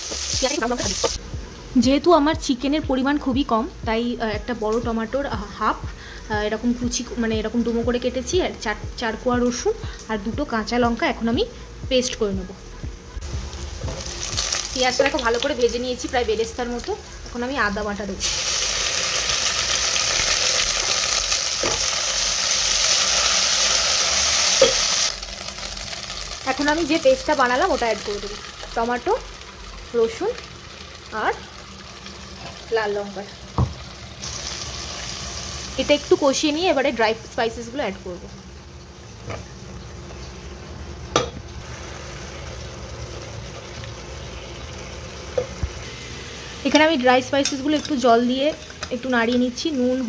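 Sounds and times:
paste sizzling in hot oil: 0:00.0 - 0:01.2, 0:18.2 - 0:33.0, 0:33.7 - 0:36.9.

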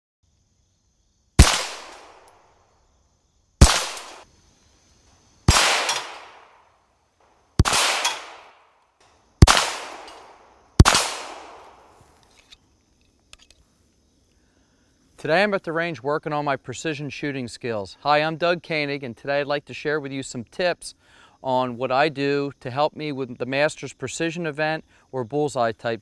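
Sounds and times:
pistol shots: 0:01.4 - 0:02.3, 0:03.6 - 0:04.2, 0:05.5 - 0:06.6, 0:07.6 - 0:08.7, 0:09.4 - 0:12.0.

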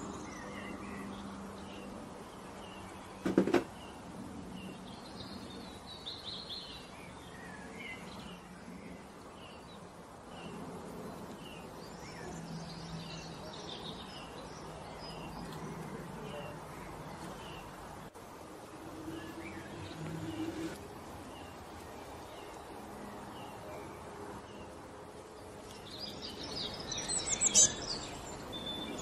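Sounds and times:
birds chirping: 0:00.0 - 0:29.0
sharp knocks clattering: 0:03.2 - 0:03.7.

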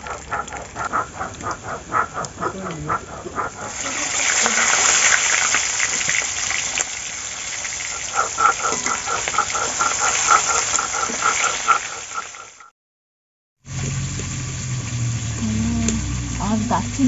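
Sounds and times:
rhythmic call: 0:00.0 - 0:05.8, 0:07.8 - 0:12.7
fish sizzling in oil: 0:03.7 - 0:08.4.

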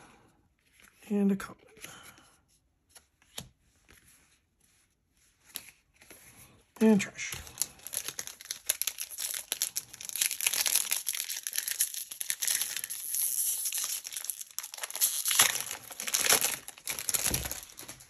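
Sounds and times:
foil wrapper crinkling: 0:07.4 - 0:18.0.

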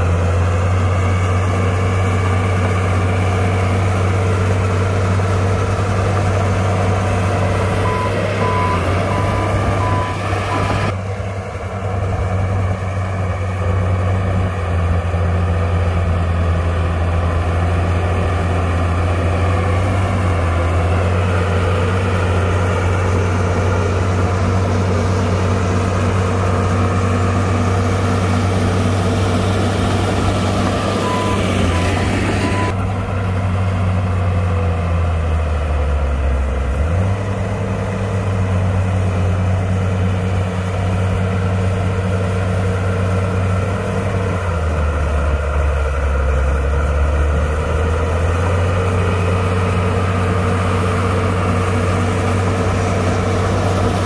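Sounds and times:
heavy diesel engine droning: 0:00.0 - 0:54.0
reversing alarm beeping: 0:07.8 - 0:10.9, 0:30.2 - 0:32.8.

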